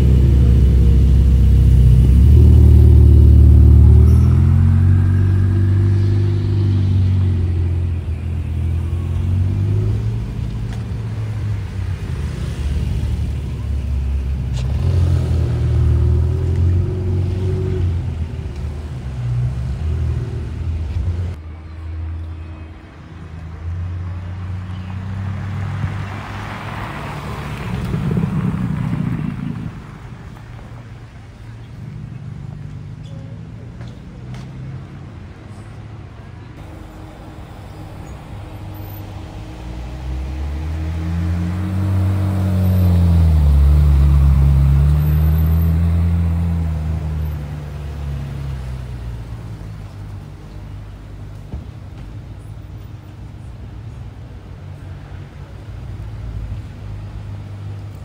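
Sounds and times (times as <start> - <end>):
sports car revving and pulling away: 0.0 - 21.4, 23.7 - 30.6, 36.6 - 51.3
car engines passing slowly: 0.0 - 58.0.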